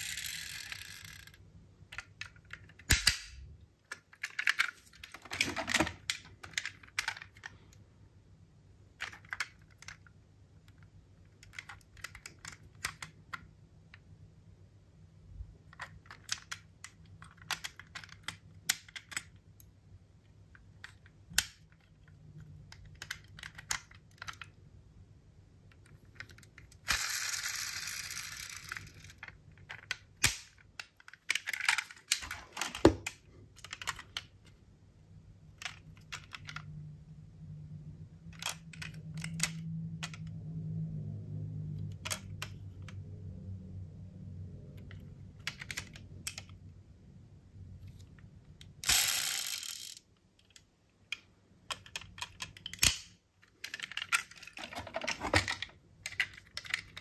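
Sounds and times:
metal model cars clicking: 0.0 - 7.8, 9.0 - 14.0, 15.7 - 19.7, 20.5 - 24.6, 25.7 - 34.3, 38.3 - 40.4, 41.8 - 43.0, 44.6 - 46.6, 48.0 - 57.0.

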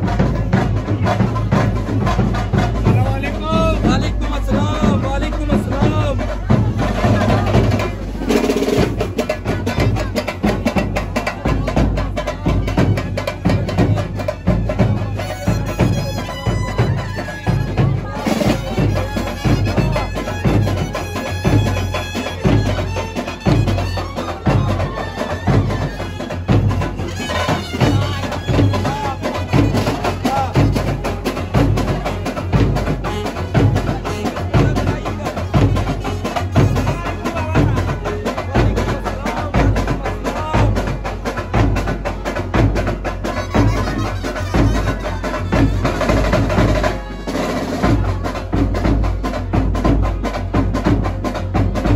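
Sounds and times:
drums beating fast rhythm: 0.0 - 51.9
brass band playing: 13.2 - 37.9, 42.8 - 49.9
saxophone melody: 43.2 - 47.9.

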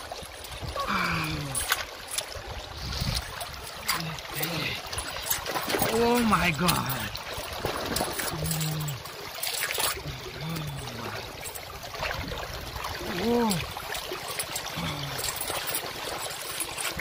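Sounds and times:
stream water rushing over rocks: 0.0 - 17.0
person exclaiming: 0.8 - 1.7, 13.0 - 13.7.

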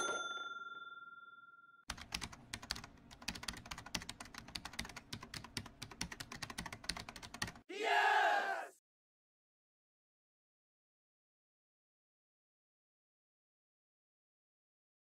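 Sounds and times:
bell-like ding: 0.0 - 1.8
keyboard typing clicks: 1.9 - 7.6.

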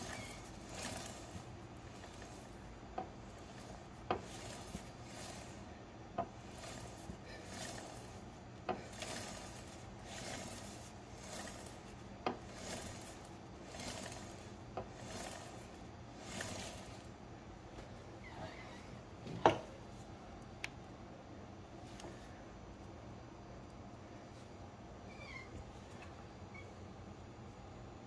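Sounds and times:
chain rolling over sprockets: 0.0 - 17.2.

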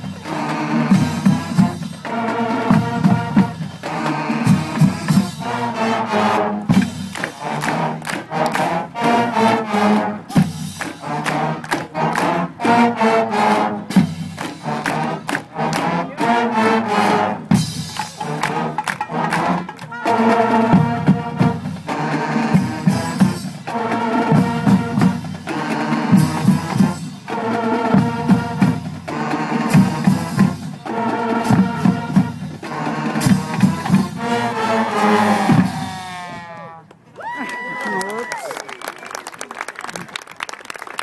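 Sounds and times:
drumline hits: 0.0 - 36.4
brass section holding chords: 7.4 - 10.3, 14.6 - 36.9.

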